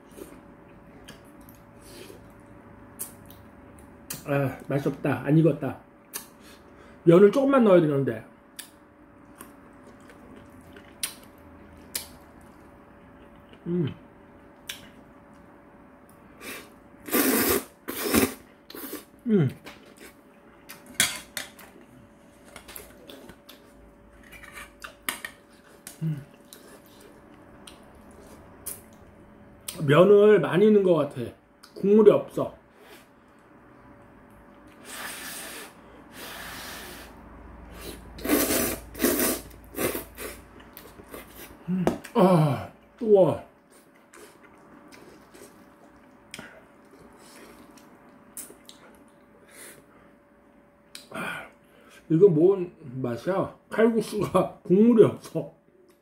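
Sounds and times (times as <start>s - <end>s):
wet chewing of noodles: 9.2s - 13.6s, 24.5s - 29.0s, 34.5s - 41.6s, 43.6s - 49.8s.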